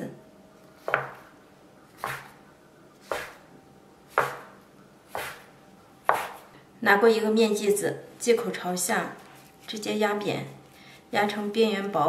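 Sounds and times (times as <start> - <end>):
dough scraper striking wooden board: 0.9 - 1.2, 2.0 - 2.3, 3.1 - 3.4, 4.1 - 5.4, 6.1 - 6.4.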